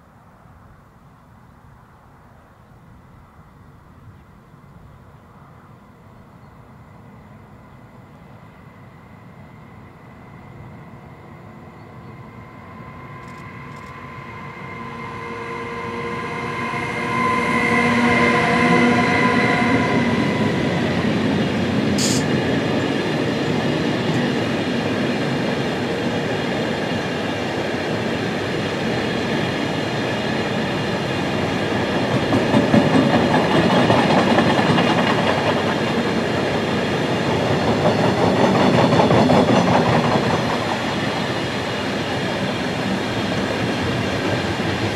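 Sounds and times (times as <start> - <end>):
electric locomotive tones: 6.4 - 26.2
train wheels rumbling on rails: 6.9 - 44.9
high squeal: 11.1 - 22.3.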